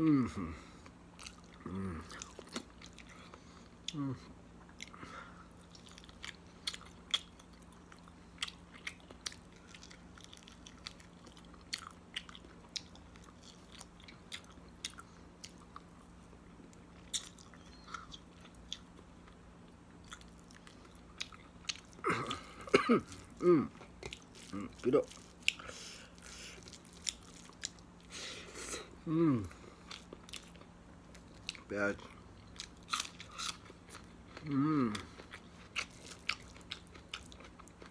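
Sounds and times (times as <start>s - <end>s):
faint steady hum: 0.0s - 37.9s
chewing and lip smacks: 5.6s - 22.0s, 23.1s - 28.1s
person speaking: 24.5s - 25.2s.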